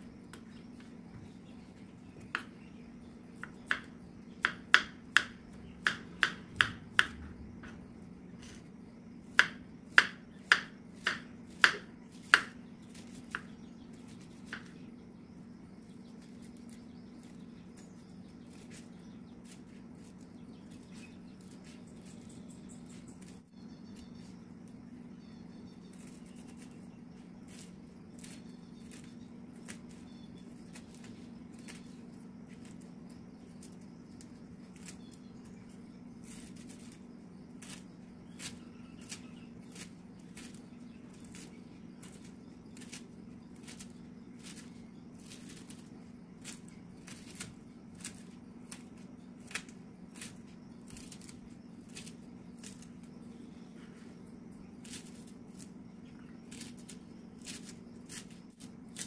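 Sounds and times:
steady low hum: 0.0 - 59.0
knife chopping on wooden board: 3.4 - 7.8, 9.3 - 12.6, 14.4 - 14.7.

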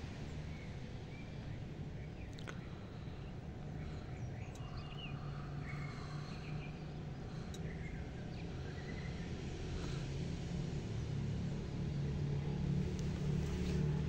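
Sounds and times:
steady low hum: 0.0 - 14.0
faint bird chirps: 0.4 - 9.3
light clicks: 4.4 - 4.8.

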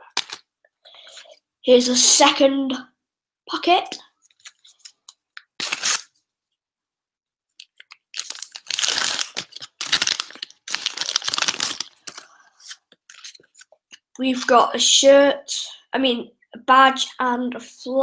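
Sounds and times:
packet tearing: 0.0 - 0.4, 4.4 - 6.1, 7.6 - 14.0
wrapper crinkling: 0.0 - 0.4, 4.3 - 6.1, 7.6 - 14.0.

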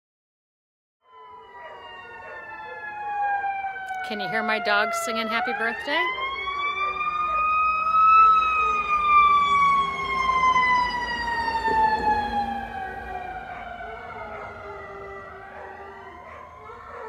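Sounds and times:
dog howling: 1.2 - 3.8, 6.2 - 7.6, 10.0 - 17.0.

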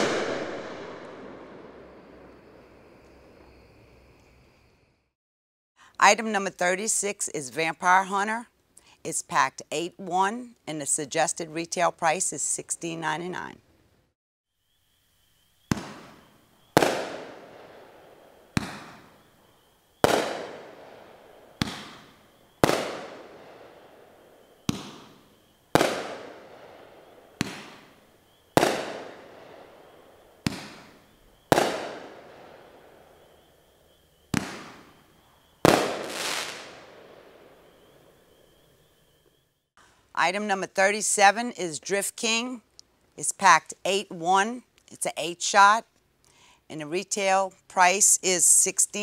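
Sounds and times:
firework aerial bang: 0.0 - 3.5, 15.7 - 19.2, 20.0 - 23.9, 24.6 - 28.0, 28.6 - 32.8, 34.3 - 35.0, 35.6 - 38.0
firework launch thump: 18.6 - 19.1.

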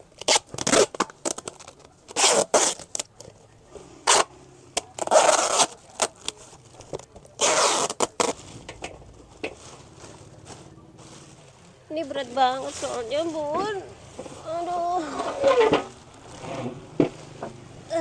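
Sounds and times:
packing tape pulled off roll: 0.1 - 3.3, 4.0 - 8.9.

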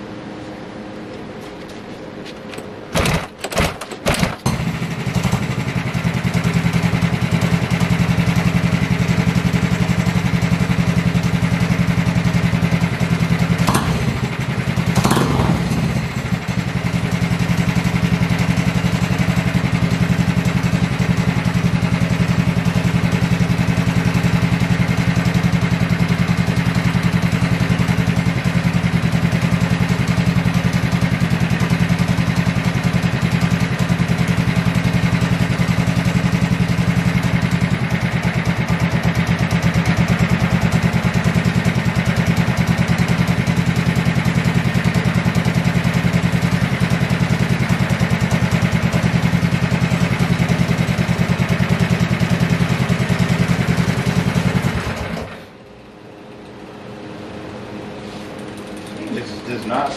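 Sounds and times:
kart engine idling: 2.6 - 55.9, 56.9 - 59.6
engine revving: 4.1 - 30.2.

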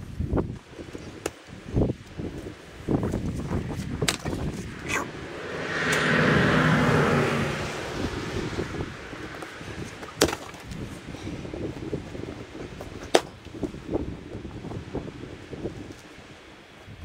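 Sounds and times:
vehicle passing: 3.4 - 10.2.

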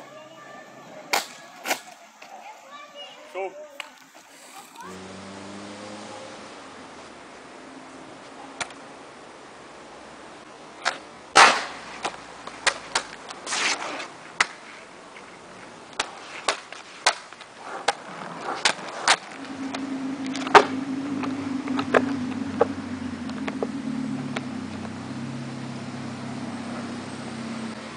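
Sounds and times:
steady low hum: 17.6 - 27.9.

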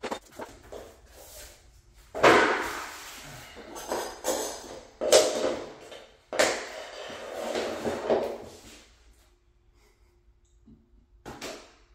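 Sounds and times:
tools scraping on vinyl floor: 2.2 - 8.9.

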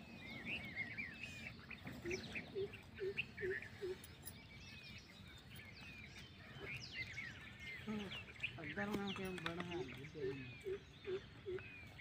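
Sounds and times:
birds chirping: 0.0 - 12.0
low bird calls: 0.0 - 12.0.

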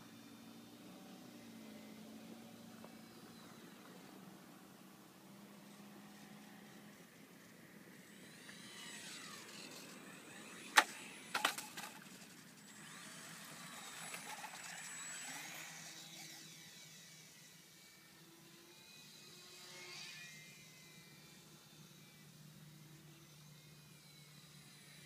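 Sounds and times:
electric motor and propeller whining: 0.0 - 25.0
model plane landing clatter: 8.4 - 12.8, 13.4 - 15.6.

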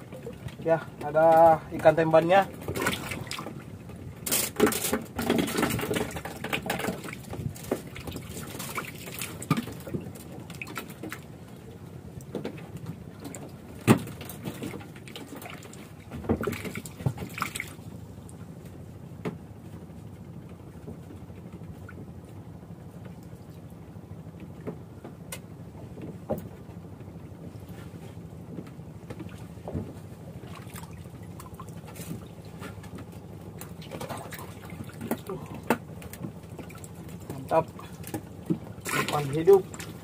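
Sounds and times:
steady low hum: 0.0 - 40.0
fishing line and tackle knocks: 35.0 - 39.6.

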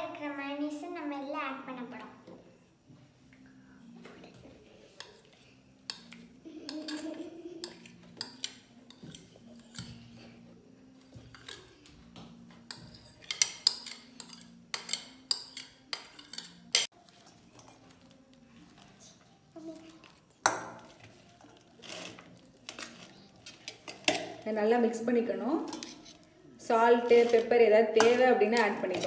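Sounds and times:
spoon scraping and tapping bowl: 4.9 - 10.2, 11.0 - 16.9, 20.1 - 24.4, 25.6 - 26.3, 27.0 - 29.0.

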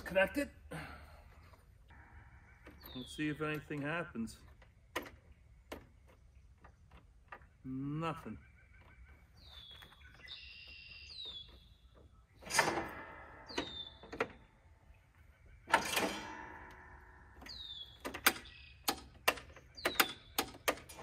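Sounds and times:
loud clunks with ringing: 12.4 - 14.4, 15.7 - 19.0.

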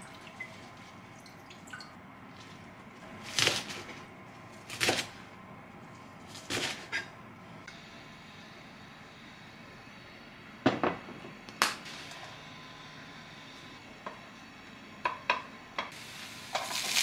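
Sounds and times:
water drips: 0.0 - 2.0.

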